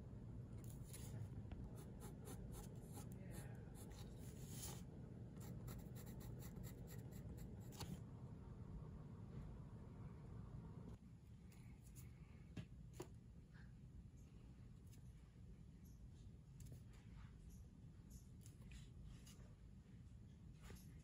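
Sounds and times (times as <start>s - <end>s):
pencil scratching on paper: 0.6s - 4.8s, 5.4s - 7.9s.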